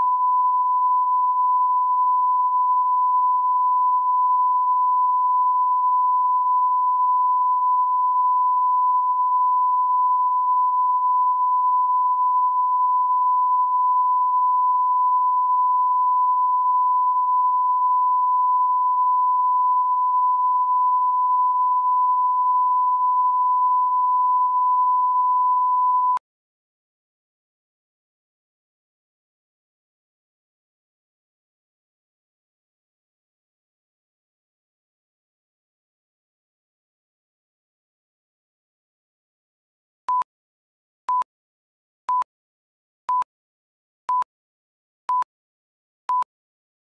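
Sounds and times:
steady test tone beep: 0.0s - 26.2s, 40.1s - 40.3s, 41.1s - 41.3s, 42.1s - 42.3s, 43.1s - 43.3s, 44.1s - 44.3s, 45.1s - 45.3s, 46.1s - 46.3s.

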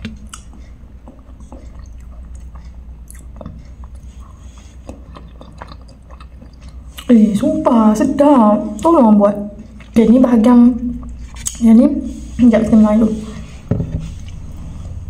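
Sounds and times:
wet mouth clicks and smacks: 0.0s - 4.1s, 4.8s - 7.1s, 11.0s - 11.6s
person chewing food: 0.0s - 7.5s, 9.5s - 12.4s
low steady hum: 0.0s - 15.0s.

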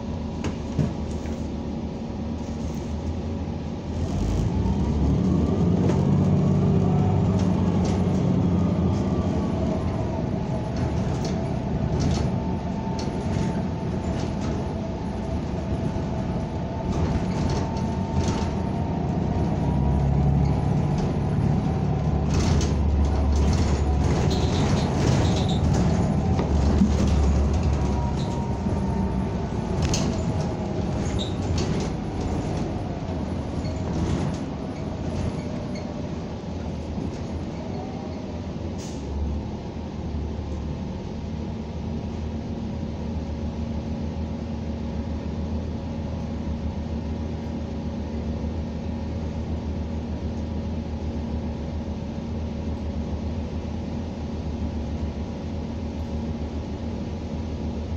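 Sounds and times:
bus engine and drivetrain whine: 0.0s - 57.9s
low road rumble: 0.0s - 57.9s
interior rattles and knocks: 0.2s - 1.6s, 4.5s - 37.8s.

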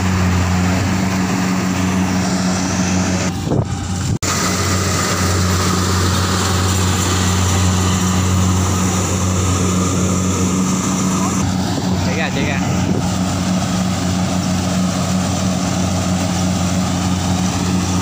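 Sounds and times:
harvester diesel engine running: 0.0s - 18.0s.

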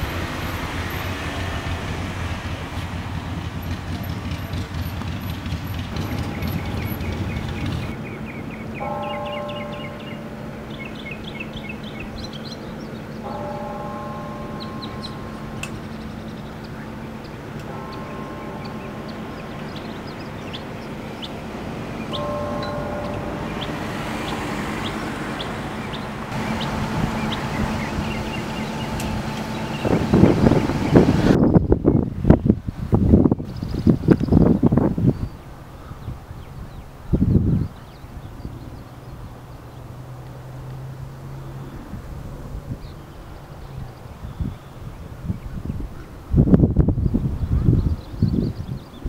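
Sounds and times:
steady low rumble: 0.0s - 36.3s
wind buffeting microphone: 0.0s - 40.1s, 41.4s - 49.0s
small birds chirping: 3.2s - 39.9s
faint chord of held tones: 26.3s - 31.2s.

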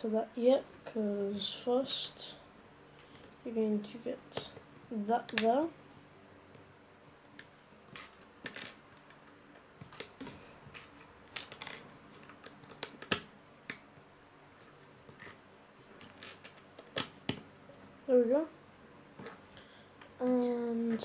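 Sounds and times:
plastic bricks clicking together: 10.8s - 13.8s.

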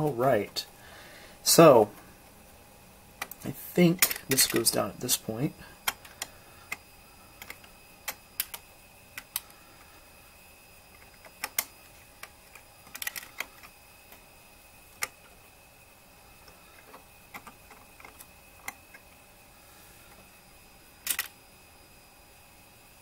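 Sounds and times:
metal and plastic clicks: 4.0s - 4.7s, 7.4s - 8.6s, 11.0s - 14.2s, 21.0s - 21.3s.

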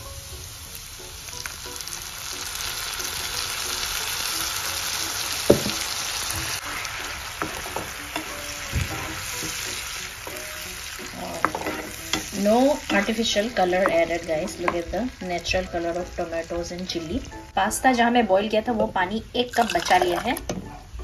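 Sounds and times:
sauce sizzling in a pan: 0.0s - 20.4s
spatula knocking against pan: 7.4s - 10.5s, 11.4s - 12.3s.

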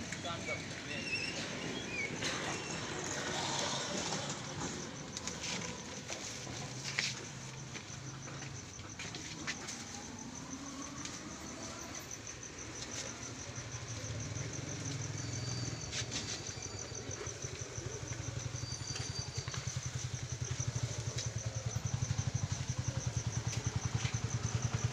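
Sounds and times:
motor engine running: 17.0s - 24.9s.

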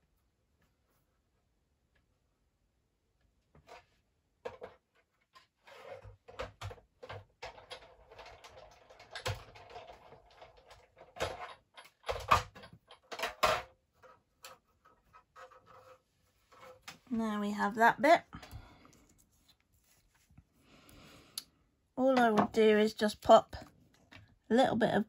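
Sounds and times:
cardstock and plates knocking and rustling: 3.6s - 17.1s.

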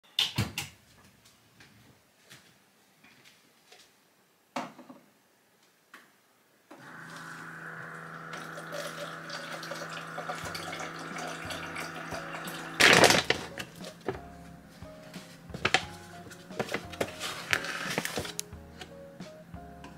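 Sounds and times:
kitchen tap running: 6.7s - 13.7s.

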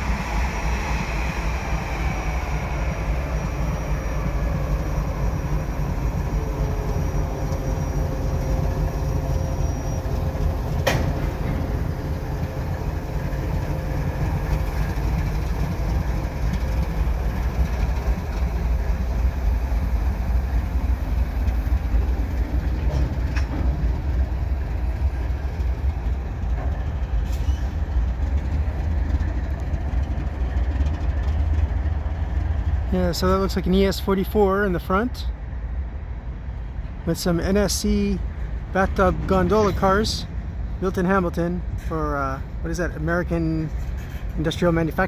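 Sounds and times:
wheels on rails: 0.0s - 33.8s
freight cars rolling by: 0.0s - 45.0s
locomotive engine rumble: 0.0s - 45.0s.

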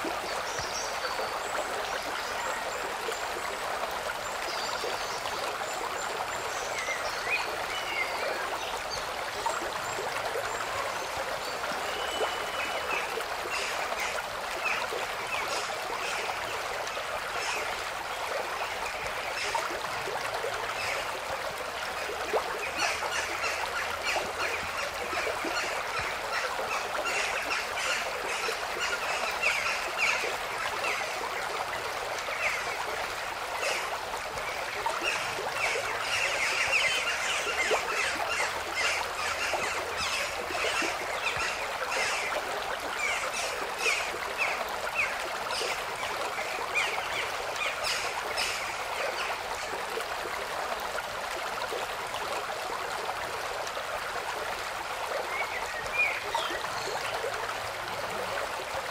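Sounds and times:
stream water rushing: 0.0s - 58.9s.

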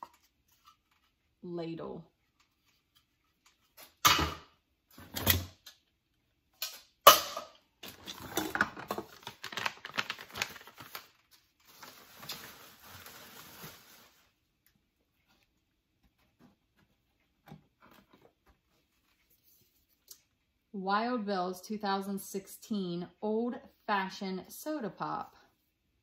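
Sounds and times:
paper bag crinkling: 8.0s - 14.4s.

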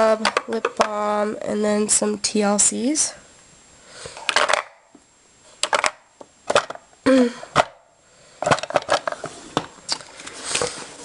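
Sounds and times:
plastic tubes clicking and clacking: 8.4s - 10.8s.

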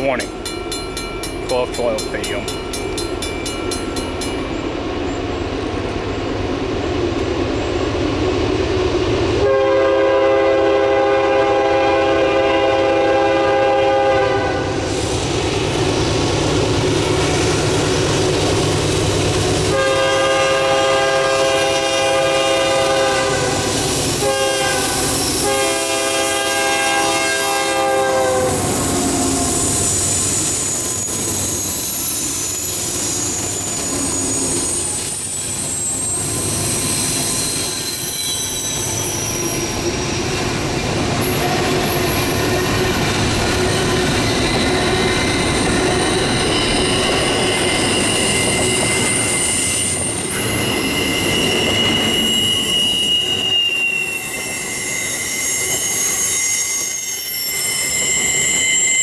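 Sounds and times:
diesel locomotives rumbling: 0.0s - 59.0s
locomotive horn blasts: 9.4s - 14.8s, 19.7s - 29.6s.

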